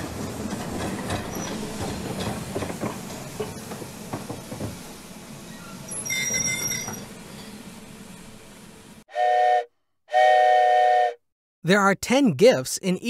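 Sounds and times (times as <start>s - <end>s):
steam train chugging and rattling: 0.0s - 8.4s
steam whistle toot: 9.1s - 11.2s.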